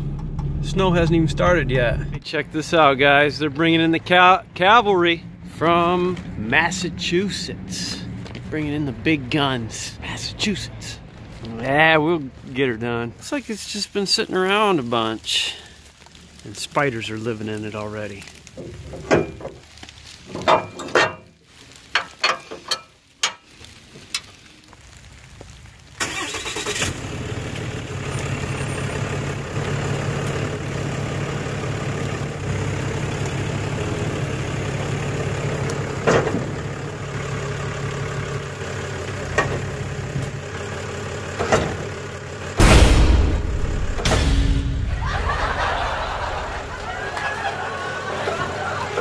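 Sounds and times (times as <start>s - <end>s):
diesel truck engine idling: 0.0s - 11.0s, 27.0s - 44.0s, 44.6s - 49.0s
metal clanks and knocks: 18.6s - 19.6s, 20.3s - 21.3s.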